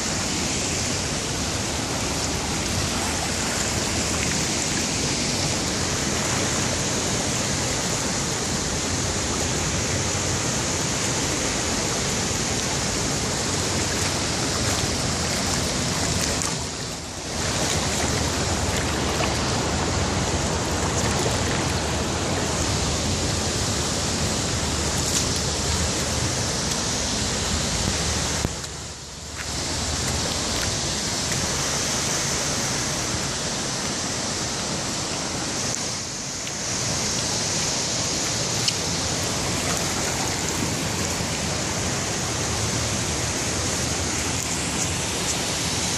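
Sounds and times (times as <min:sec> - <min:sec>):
river water rushing in rapids: 0:00.0 - 0:45.9
water spilling over weir: 0:11.0 - 0:28.6.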